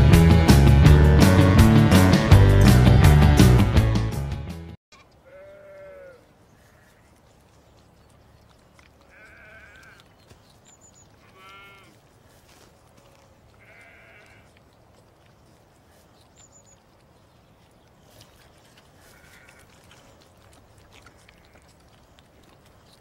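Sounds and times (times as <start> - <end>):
lamb bleating faintly: 5.2 - 7.1, 9.0 - 10.1, 11.2 - 12.0, 12.9 - 14.6, 19.0 - 20.1.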